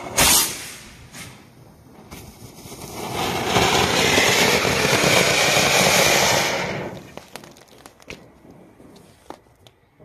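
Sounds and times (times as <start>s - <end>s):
firework fountain hissing: 0.0s - 7.2s.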